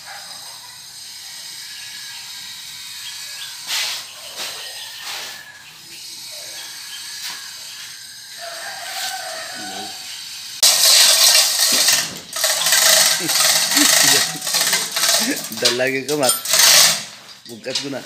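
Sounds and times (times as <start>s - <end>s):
steel chain rattling and clanking: 10.6s - 17.9s.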